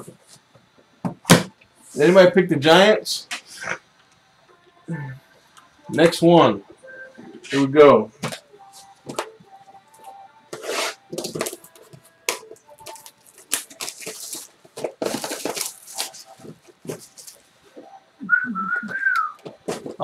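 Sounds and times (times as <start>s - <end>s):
plastic wrap crinkling and tearing: 10.6s - 17.5s.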